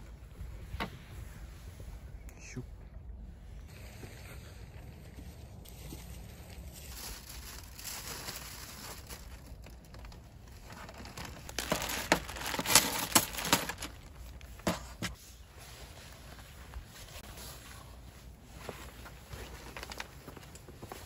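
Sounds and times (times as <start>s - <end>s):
packaging crinkling and rustling: 6.0s - 15.2s, 18.7s - 21.0s.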